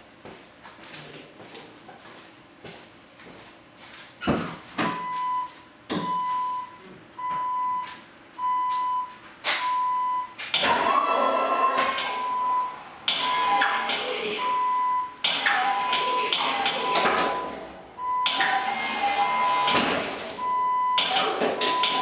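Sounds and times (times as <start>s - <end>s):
hydraulic pump whirring: 10.5s - 22.0s
warning chime beeping: 11.2s - 18.3s.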